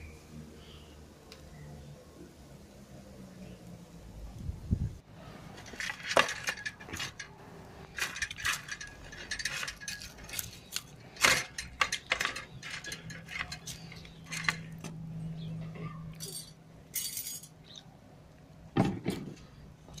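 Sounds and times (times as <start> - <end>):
wire basket scraping ceramic plate: 5.4 - 14.8.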